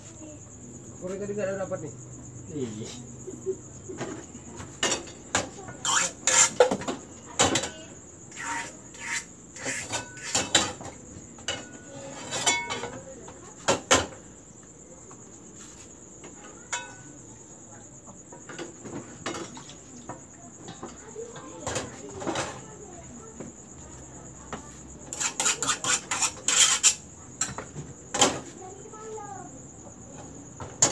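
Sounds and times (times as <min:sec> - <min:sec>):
crickets chirring: 0:00.0 - 0:30.9
metal frying pans clanking: 0:09.8 - 0:13.0, 0:16.7 - 0:17.0.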